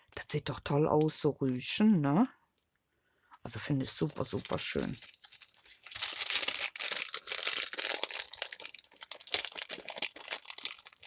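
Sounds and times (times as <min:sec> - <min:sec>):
plastic bag crinkling: 0:03.9 - 0:11.0.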